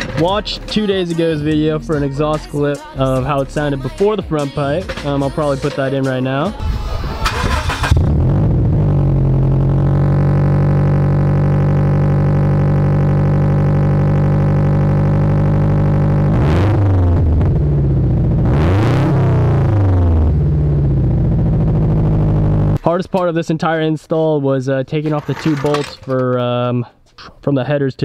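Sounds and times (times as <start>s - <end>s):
car exhaust idling: 6.6s - 22.8s
engine revving: 6.6s - 22.8s.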